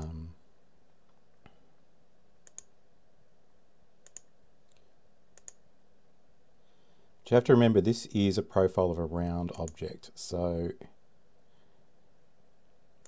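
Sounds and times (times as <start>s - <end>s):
computer mouse button clicking: 2.4s - 2.7s, 4.0s - 4.3s, 5.4s - 5.6s.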